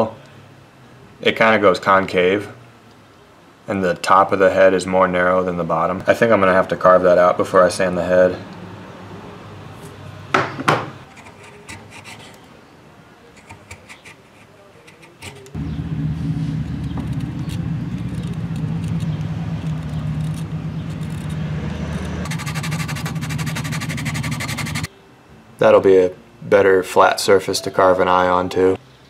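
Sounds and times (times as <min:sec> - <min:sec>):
sharp knocks: 0:10.4 - 0:11.0
knife carving wood: 0:11.1 - 0:12.4, 0:13.4 - 0:15.6, 0:17.0 - 0:24.9
low motor-like hum: 0:15.6 - 0:24.9.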